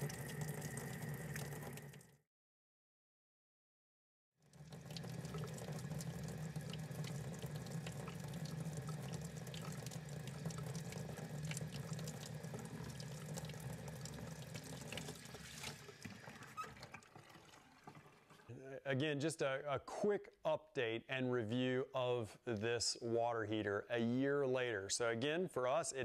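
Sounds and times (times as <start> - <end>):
faucet running into sink: 0.0 - 2.2, 4.4 - 18.5
small drips and ticks: 0.0 - 2.2, 4.4 - 18.5.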